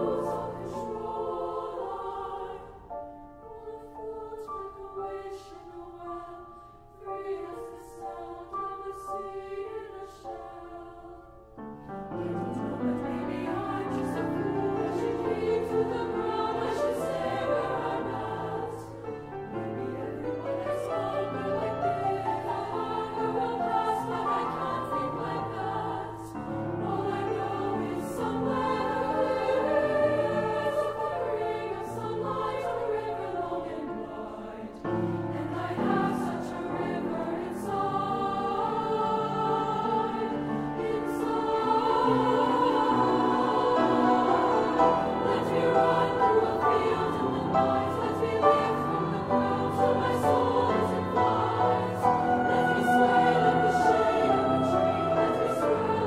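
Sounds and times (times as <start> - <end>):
treble choir singing in parts: 0.0 - 56.0
piano accompaniment: 11.5 - 56.0.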